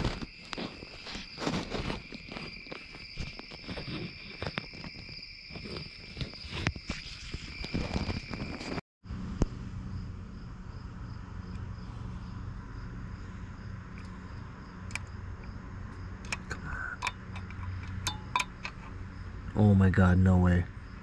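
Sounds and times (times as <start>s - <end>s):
low hum: 7.9s - 19.9s
high steady chirring: 13.5s - 19.6s
metal pick clicking and scraping: 16.2s - 19.0s.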